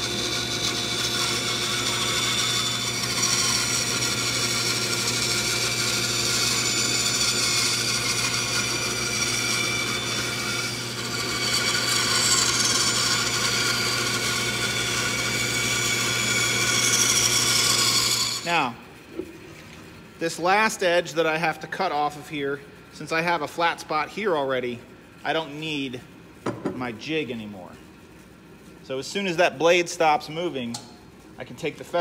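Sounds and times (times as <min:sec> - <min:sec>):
bandsaw blade rasping through wood: 0:00.0 - 0:18.6
bandsaw motor humming: 0:00.0 - 0:19.0
shop vacuum running: 0:00.0 - 0:32.0.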